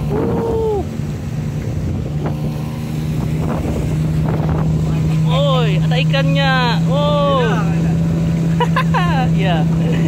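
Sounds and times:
wind noise: 0:00.0 - 0:01.0, 0:01.6 - 0:05.2
outboard motor running: 0:00.0 - 0:10.0
water noise: 0:00.0 - 0:10.0.

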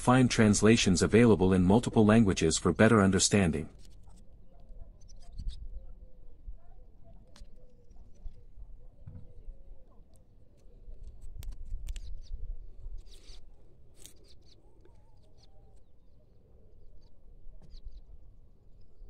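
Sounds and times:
small clicks and scrapes of hands: 0:10.1 - 0:12.3, 0:13.0 - 0:15.9
brief rustle: 0:13.0 - 0:15.0.

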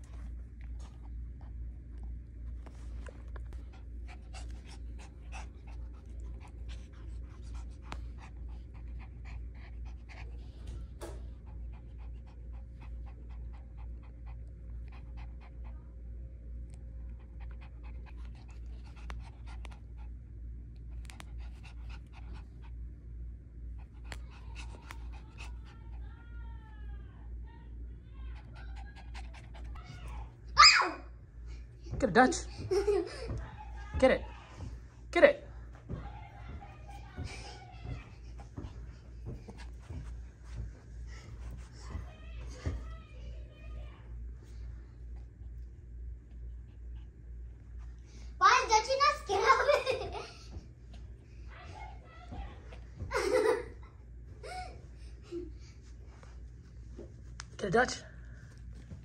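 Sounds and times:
dog panting: 0:02.6 - 0:16.0, 0:16.7 - 0:26.2, 0:28.2 - 0:30.4, 0:31.5 - 0:43.6.

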